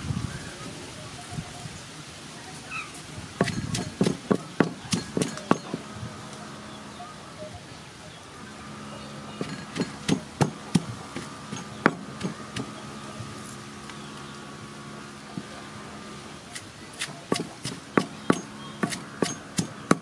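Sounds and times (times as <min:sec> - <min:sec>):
pestle pounding in wooden mortar: 0:03.4 - 0:05.9, 0:09.4 - 0:12.8, 0:16.5 - 0:20.0.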